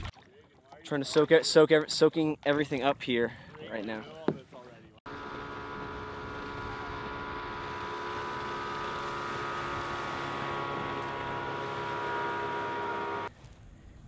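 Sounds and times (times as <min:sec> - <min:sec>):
distant speedboat engine: 0:05.1 - 0:13.3.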